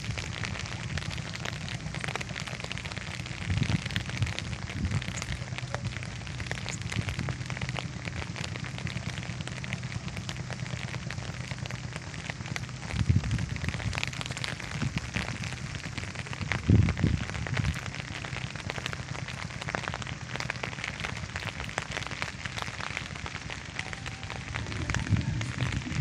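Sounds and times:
low rumble: 0:00.0 - 0:26.0
rain falling: 0:00.0 - 0:26.0.

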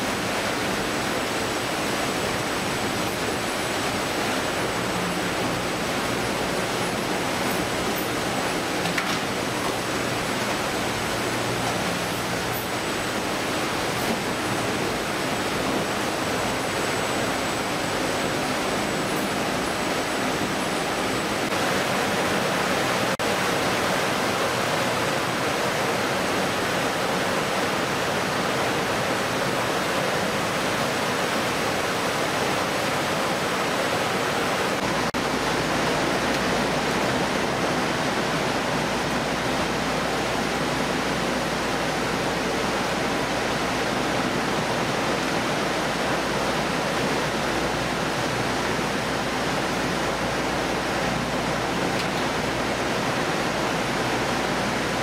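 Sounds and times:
processing machinery: 0:00.0 - 0:25.6
water spraying over conveyors: 0:00.0 - 0:55.0.

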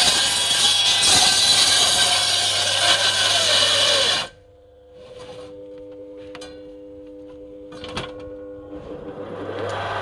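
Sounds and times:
table saw cutting wood: 0:00.0 - 0:04.4
quiet steady hum: 0:04.3 - 0:09.5.

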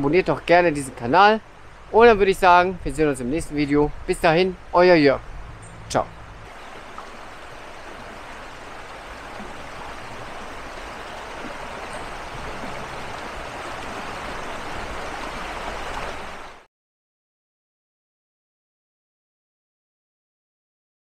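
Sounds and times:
brook flowing over stones: 0:04.2 - 0:16.7.

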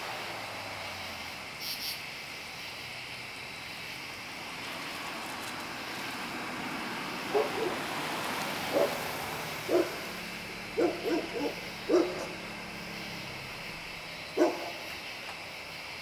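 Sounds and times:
insects chirping: 0:00.0 - 0:16.0
dog barking: 0:07.3 - 0:07.8, 0:08.7 - 0:09.0, 0:09.7 - 0:10.0, 0:10.8 - 0:12.4, 0:14.4 - 0:14.8.

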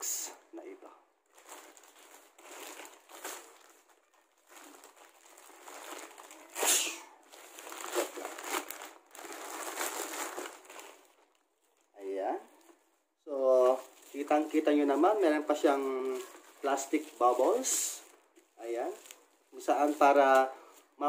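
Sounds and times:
plastic pouch tearing and crinkling: 0:01.3 - 0:11.9, 0:13.6 - 0:20.5.

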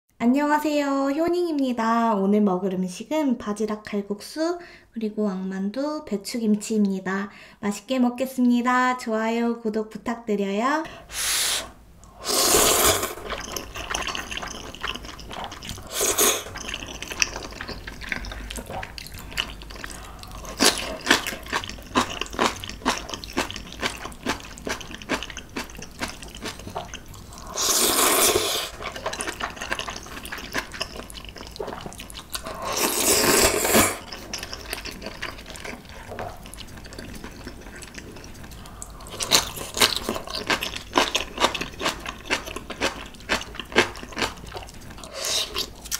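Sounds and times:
long wet noodle slurps: 0:11.1 - 0:18.6, 0:27.3 - 0:30.1, 0:31.2 - 0:34.4
wet chewing and mouth clicks: 0:12.0 - 0:45.9.

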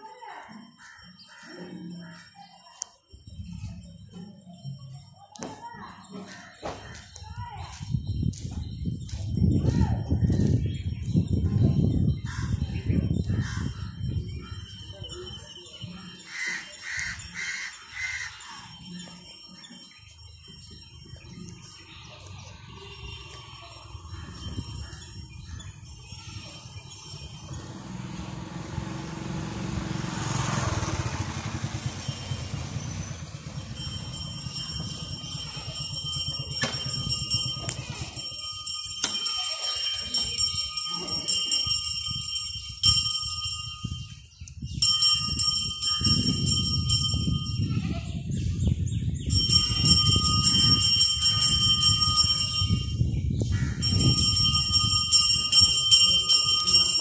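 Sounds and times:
temple bell ringing: 0:13.2 - 0:57.0.

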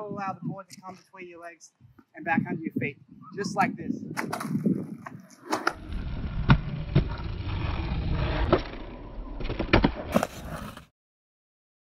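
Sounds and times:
skateboard wheels rolling on concrete: 0:04.0 - 0:10.9
skateboard clacking on concrete: 0:04.2 - 0:05.8.

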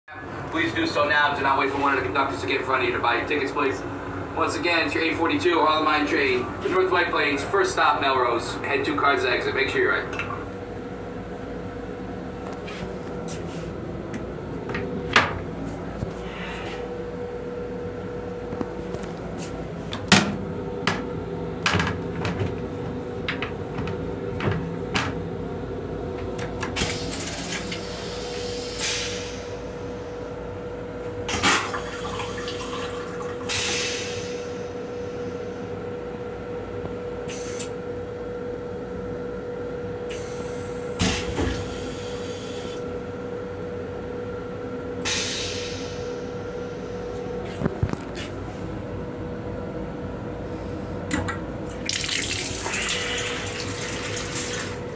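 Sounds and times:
steady hum: 0:00.1 - 0:54.9
toilet flushing: 0:31.3 - 0:34.5, 0:51.7 - 0:54.9.

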